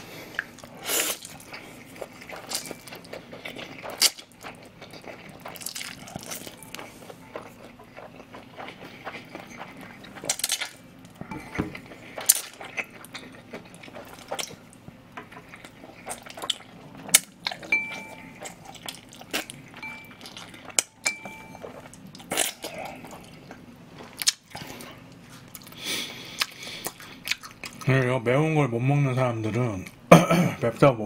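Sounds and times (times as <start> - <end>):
chewing with wet mouth smacks: 0.3 - 28.1
short electronic beeps: 19.8 - 20.2.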